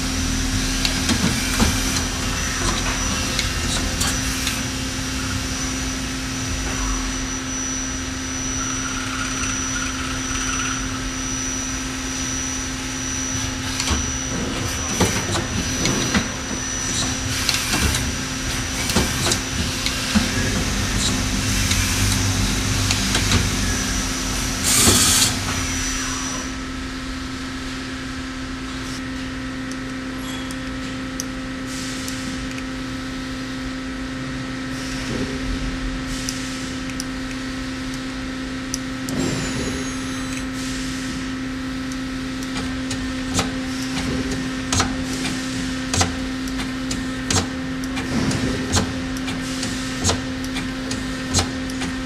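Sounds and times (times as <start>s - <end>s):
lathe humming: 0.0s - 29.0s
high machine whine: 0.0s - 52.0s.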